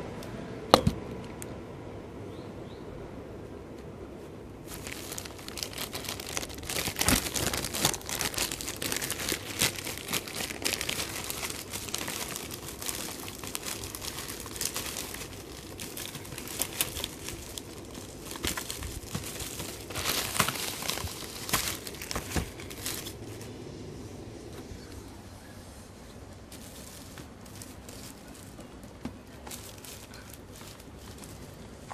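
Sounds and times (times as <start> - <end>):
bubble wrap crinkling: 4.6 - 23.6, 26.1 - 31.9.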